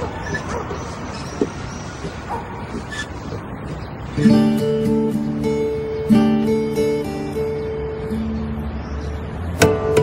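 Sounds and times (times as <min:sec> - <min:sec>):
acoustic guitars playing: 0:04.1 - 0:10.0.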